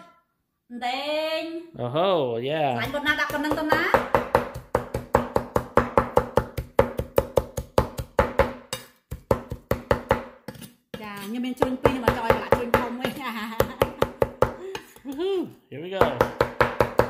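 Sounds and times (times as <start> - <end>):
cleaver chopping on wooden board: 2.8 - 14.6, 16.0 - 17.0.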